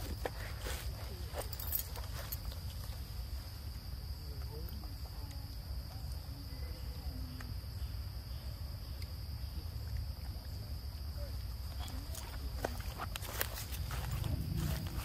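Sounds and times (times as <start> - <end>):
insect chorus drone: 0.0 - 15.0
low rumble: 13.8 - 15.0.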